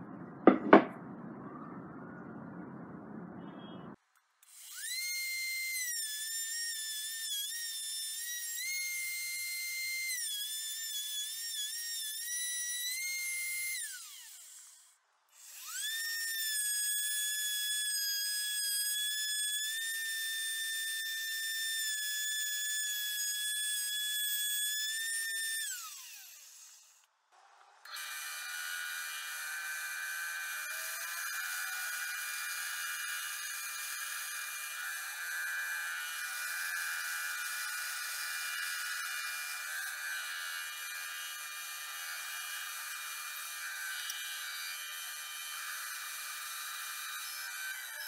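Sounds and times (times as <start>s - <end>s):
wood router whining: 4.4s - 48.0s
band saw running: 27.9s - 48.0s.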